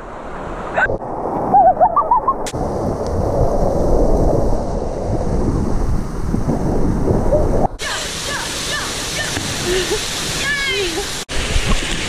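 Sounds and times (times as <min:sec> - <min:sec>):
creek water rushing over rock: 0:07.8 - 0:12.0.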